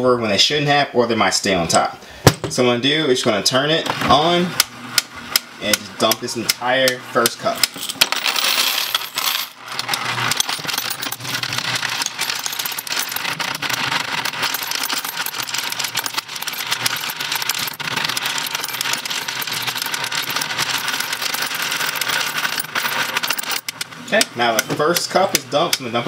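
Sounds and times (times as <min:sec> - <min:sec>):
motor hum: 0:03.8 - 0:25.8
coins clattering: 0:07.6 - 0:23.8.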